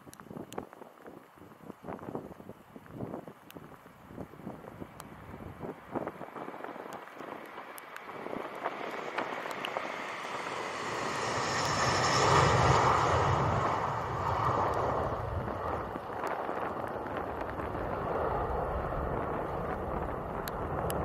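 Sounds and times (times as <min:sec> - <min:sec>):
jet airliner taking off: 0:07.5 - 0:21.0.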